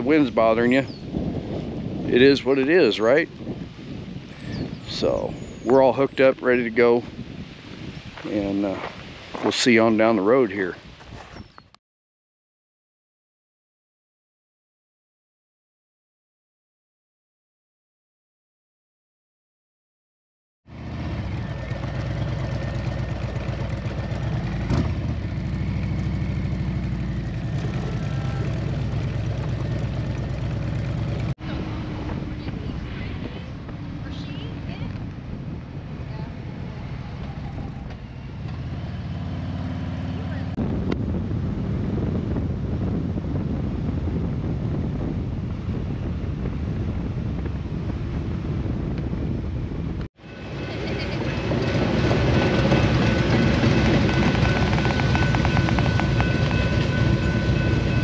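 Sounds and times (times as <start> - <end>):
wind rushing over microphone: 0.0 - 11.8, 20.7 - 58.0
passing freight train: 20.7 - 42.1, 50.2 - 58.0
motorcycle engine at low speed: 20.7 - 58.0.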